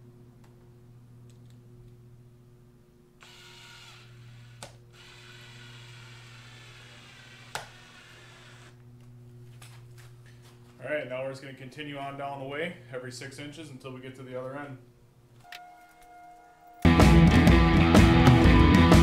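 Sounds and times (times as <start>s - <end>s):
steady low hum: 0.0s - 17.7s
cordless drill driving screw: 3.2s - 8.8s.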